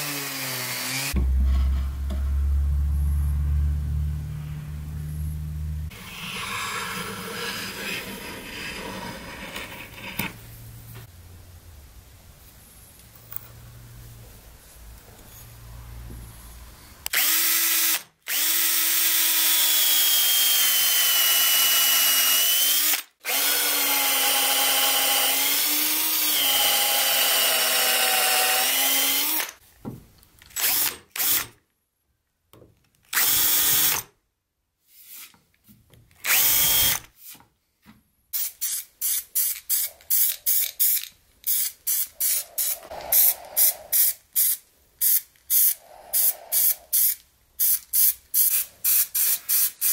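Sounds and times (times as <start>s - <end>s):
power drill boring into wood: 17.1s - 29.6s, 30.6s - 31.5s, 33.1s - 34.1s, 36.2s - 37.1s.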